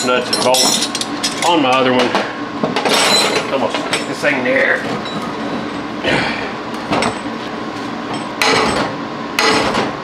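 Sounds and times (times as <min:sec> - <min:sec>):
hammer clanking on metal: 0:08.3 - 0:09.9.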